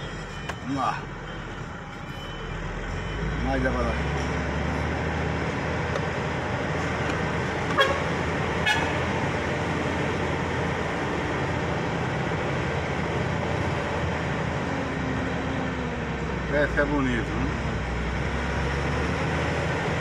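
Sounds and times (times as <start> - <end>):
vehicle engine and road noise: 0.0 - 20.0
car horn toots: 7.7 - 9.1.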